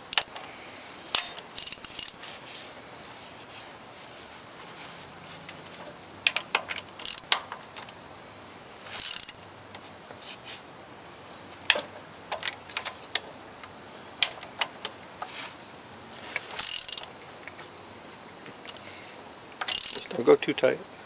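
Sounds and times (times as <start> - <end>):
socket ratchet clicking: 6.3 - 8.0, 19.6 - 20.0.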